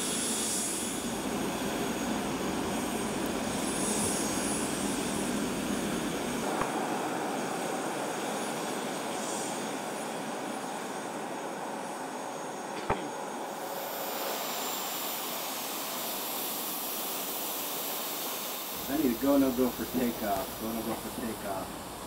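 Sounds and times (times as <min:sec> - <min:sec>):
jet engines running: 0:00.0 - 0:22.0
high whine: 0:18.7 - 0:22.0.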